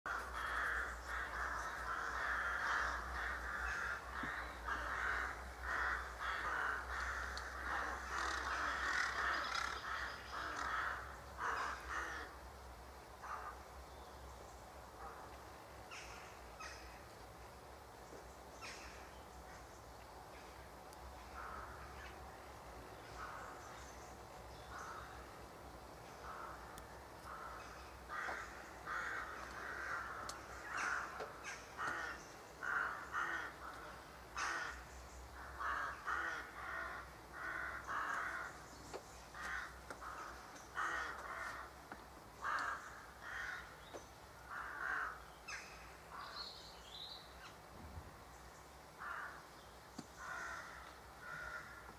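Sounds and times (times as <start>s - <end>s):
crows cawing: 0.1s - 12.4s, 13.2s - 13.6s, 15.9s - 17.0s, 21.2s - 22.2s, 24.7s - 25.3s, 26.1s - 38.6s, 39.3s - 46.4s, 49.0s - 49.5s, 50.2s - 51.9s.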